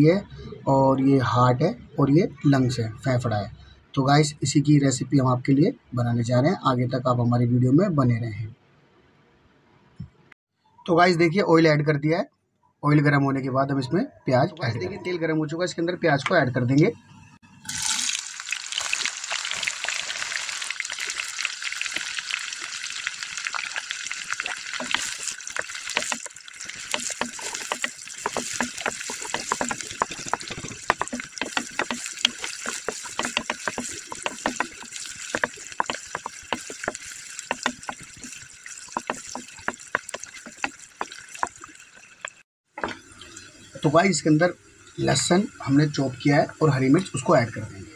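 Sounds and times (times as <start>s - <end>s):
onions sizzling in hot oil: 17.7s - 42.4s
wooden spoon stirring: 21.0s - 42.4s.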